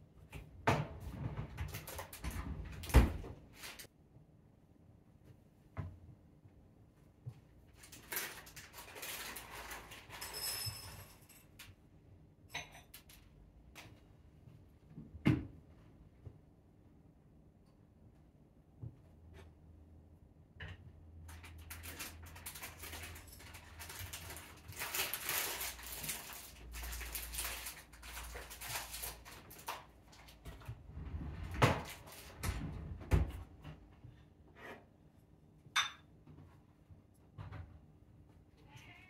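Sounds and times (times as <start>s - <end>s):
household items rustling and clattering: 0.4s - 3.9s, 7.3s - 11.8s, 21.3s - 34.7s.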